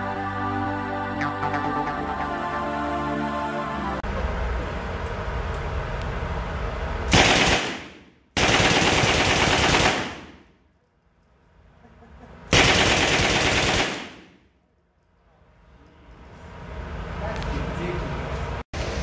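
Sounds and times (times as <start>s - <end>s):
gunfire echo: 7.1s - 10.5s, 12.6s - 14.4s
submachine gun firing bursts: 7.1s - 10.5s, 12.5s - 14.4s.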